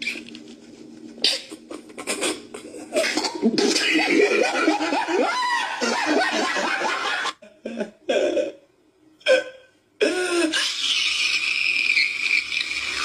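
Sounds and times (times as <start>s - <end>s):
person laughing: 1.2s - 8.6s.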